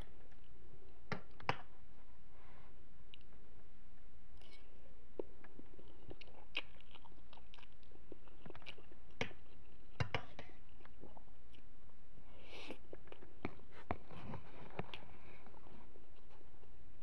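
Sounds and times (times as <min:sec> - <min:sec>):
person chewing noodles: 0:04.4 - 0:11.8.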